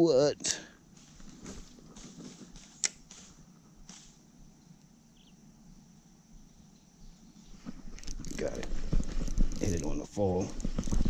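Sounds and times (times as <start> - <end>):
fishing reel clicking: 9.5 - 9.9.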